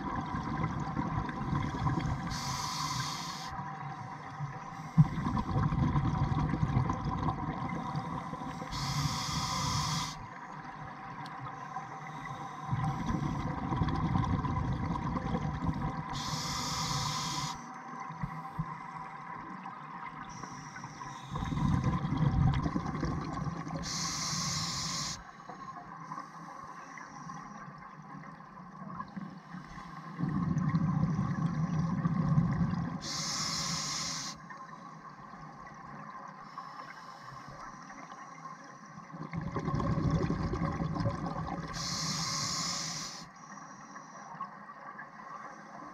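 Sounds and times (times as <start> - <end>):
bubbling exhaust underwater: 0.0 - 10.3, 12.1 - 18.8, 20.1 - 25.2, 28.8 - 34.4, 39.0 - 43.3
regulator hiss: 2.3 - 3.6, 8.6 - 10.2, 16.2 - 17.7, 23.8 - 25.2, 33.0 - 34.4, 41.7 - 43.9.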